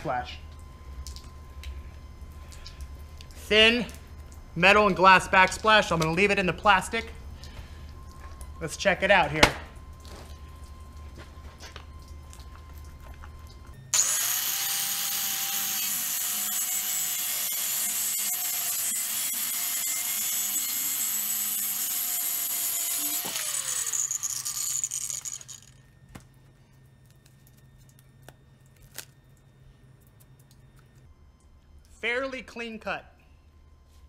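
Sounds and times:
saw motor winding down: 0:13.8 - 0:25.8
tile saw cutting with high whine: 0:13.8 - 0:25.9.

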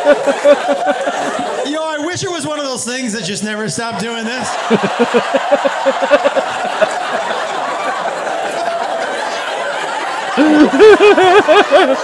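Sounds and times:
audience laughter: 0:00.0 - 0:01.7, 0:04.3 - 0:12.0
man laughing loudly: 0:00.0 - 0:01.7, 0:04.4 - 0:07.6, 0:10.3 - 0:12.0
man chuckling: 0:10.4 - 0:12.0.

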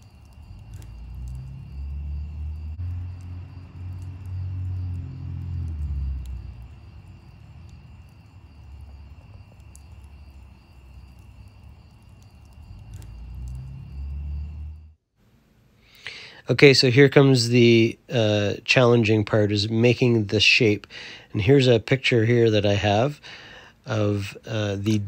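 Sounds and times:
crickets chirping: 0:00.0 - 0:15.0, 0:16.0 - 0:25.0
low rumble: 0:00.0 - 0:15.0
wood fire crackling: 0:00.0 - 0:25.0.

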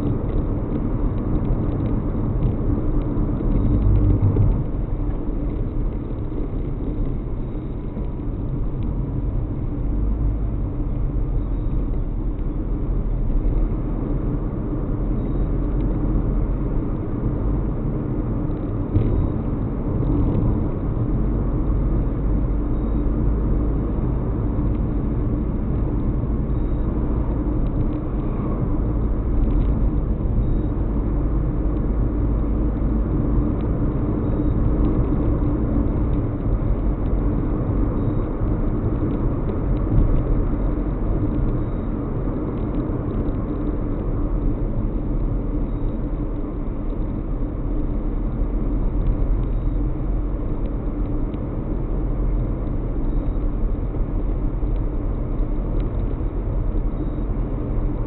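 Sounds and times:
car road and engine noise: 0:00.0 - 0:58.0.

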